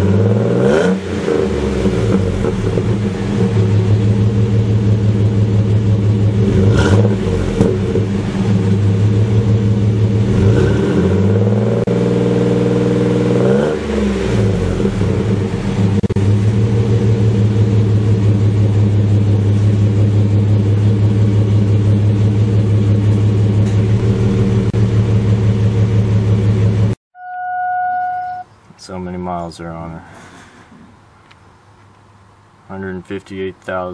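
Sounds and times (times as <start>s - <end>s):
car engine idling and revving: 0.0s - 27.0s.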